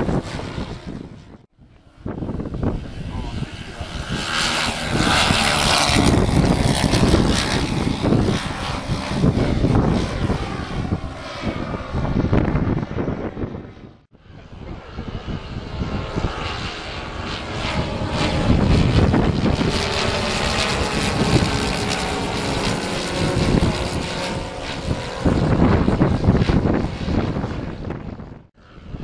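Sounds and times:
propeller aircraft engines droning: 0.0 - 29.0.

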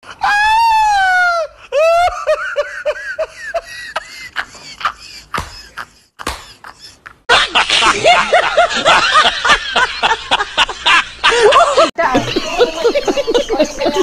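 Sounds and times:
man laughing loudly: 1.8 - 12.3
hand claps: 6.2 - 6.6.

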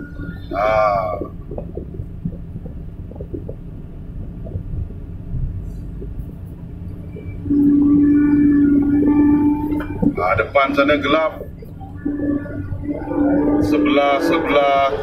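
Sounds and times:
diesel engine rumble: 0.0 - 15.0
faint ticks and rattles: 1.0 - 7.4.

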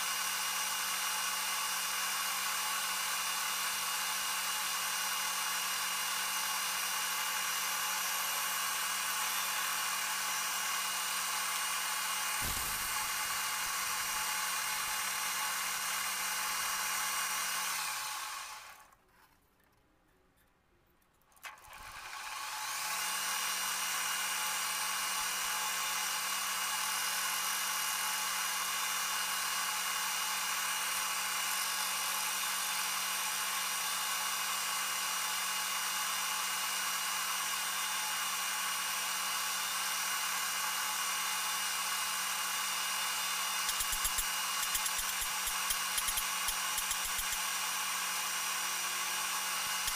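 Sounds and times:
low thud: 12.4 - 14.2.

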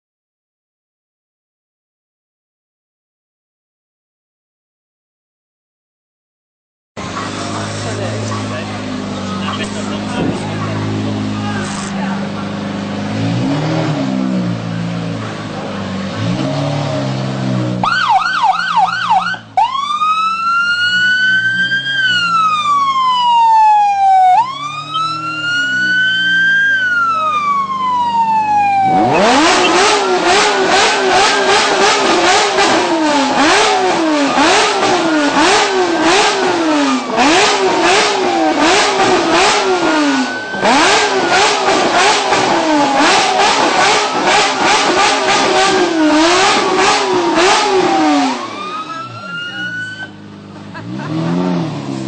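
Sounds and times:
car engine revving in blips: 7.0 - 52.0
low idling engine: 7.0 - 52.0
police siren wailing: 17.8 - 50.2.

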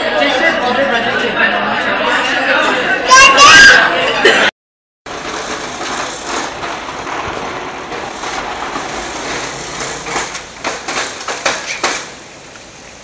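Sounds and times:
knocks and clacks: 5.1 - 12.2
plastic wheels rolling on concrete: 5.1 - 12.7.

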